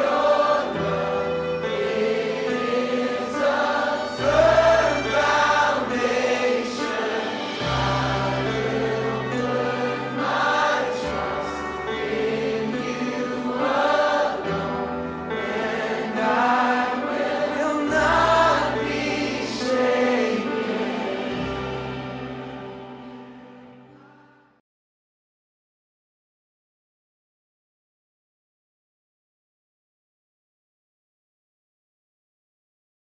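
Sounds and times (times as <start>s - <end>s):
choir singing: 0.0s - 24.5s.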